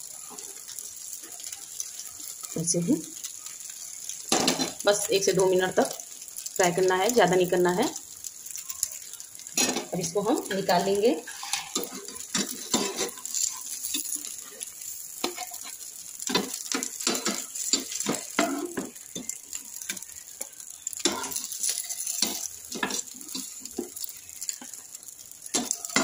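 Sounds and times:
oil sizzling in pan: 0:00.0 - 0:26.0
ladle scraping frying pan: 0:11.2 - 0:19.3.

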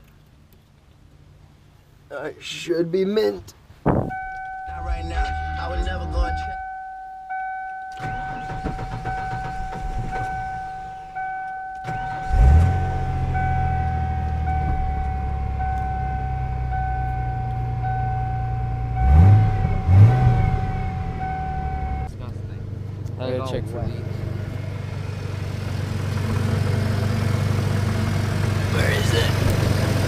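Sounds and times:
dashboard warning chime: 0:04.1 - 0:22.1
truck engine idling and revving: 0:04.2 - 0:06.7, 0:08.0 - 0:30.0
starter motor cranking: 0:08.0 - 0:10.9.

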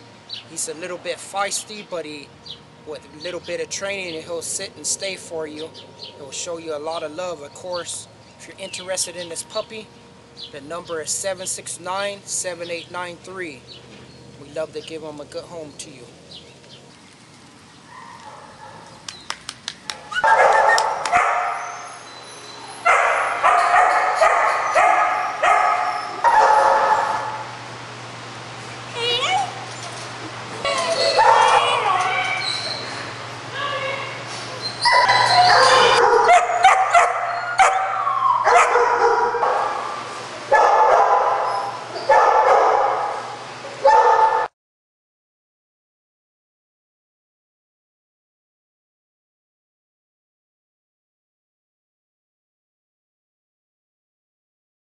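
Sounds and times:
puppies barking and yelping: 0:17.8 - 0:19.0, 0:19.9 - 0:27.6, 0:29.1 - 0:33.2, 0:33.8 - 0:44.5
dog whining: 0:20.0 - 0:27.2, 0:30.6 - 0:33.1, 0:33.8 - 0:39.8.

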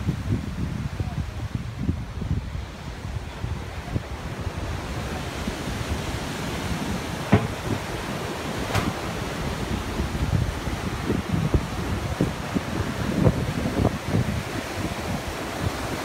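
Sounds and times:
ocean surf breaking on beach: 0:00.0 - 0:16.0
wind rumbling on microphone: 0:00.0 - 0:16.0
brief knocks: 0:07.3 - 0:07.8, 0:08.7 - 0:09.0.

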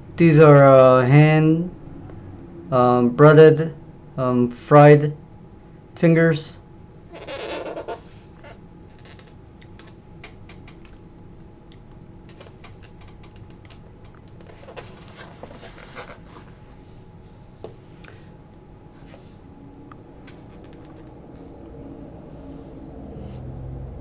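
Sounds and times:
steady low hum: 0:00.0 - 0:24.0
foam takeout box being handled: 0:13.5 - 0:16.6.

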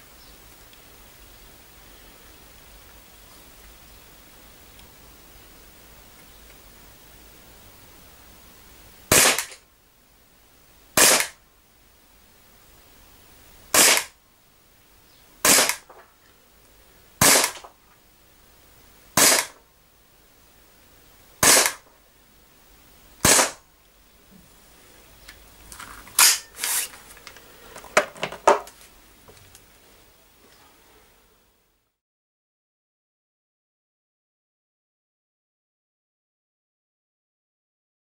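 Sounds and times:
pistol shots cracking: 0:09.1 - 0:09.6, 0:11.0 - 0:11.4, 0:13.7 - 0:14.1, 0:15.4 - 0:15.9, 0:17.2 - 0:17.7, 0:19.2 - 0:19.6, 0:21.4 - 0:21.8, 0:23.2 - 0:23.6.

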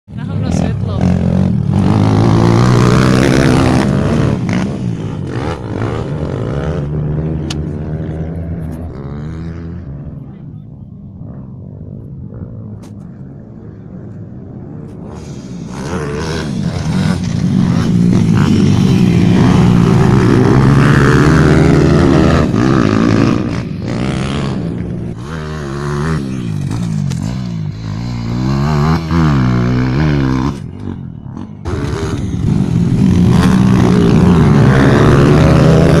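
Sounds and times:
pit bike engines revving: 0:00.1 - 0:36.0.

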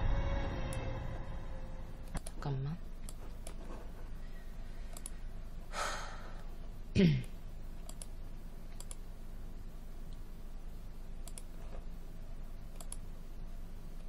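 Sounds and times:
keyboard or mouse clicks: 0:02.0 - 0:03.6, 0:04.9 - 0:05.2, 0:07.8 - 0:09.0, 0:11.2 - 0:11.5, 0:12.7 - 0:13.1
woman breathing out: 0:05.7 - 0:06.4
woman sighing: 0:05.7 - 0:06.4.

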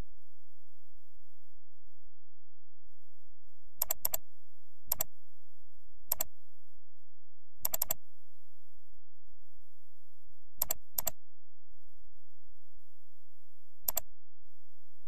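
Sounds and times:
keyboard and mouse clicks: 0:03.8 - 0:04.2, 0:06.1 - 0:06.3, 0:07.6 - 0:08.0, 0:10.6 - 0:11.2, 0:13.9 - 0:14.1.

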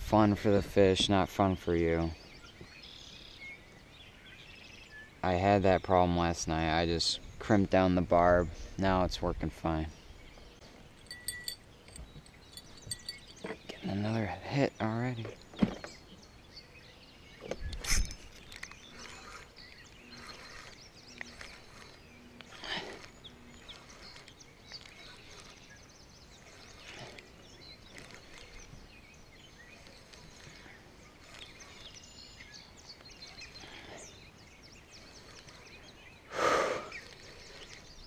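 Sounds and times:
bird chirps: 0:09.9 - 0:38.0.

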